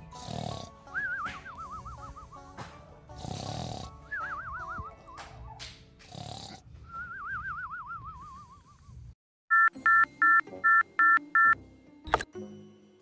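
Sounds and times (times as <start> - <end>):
two-tone ringtone beeps: 9.5 - 12.2.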